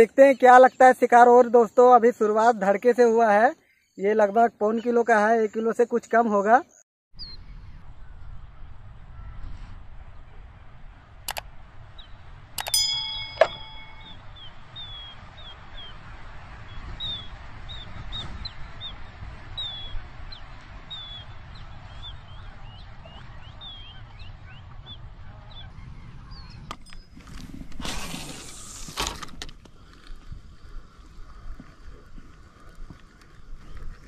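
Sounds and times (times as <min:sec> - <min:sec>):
low wind rumble: 0:07.2 - 0:34.0
sharp clicks: 0:11.3 - 0:11.5, 0:12.6 - 0:13.7
ringing bell-like ding: 0:12.6 - 0:14.3.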